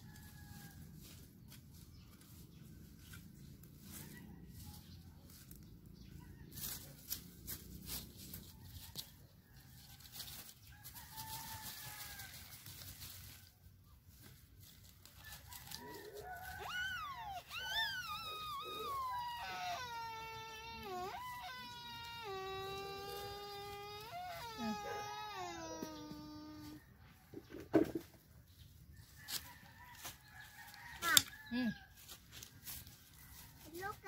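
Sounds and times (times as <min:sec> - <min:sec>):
rooster crowing: 0:15.3 - 0:27.0.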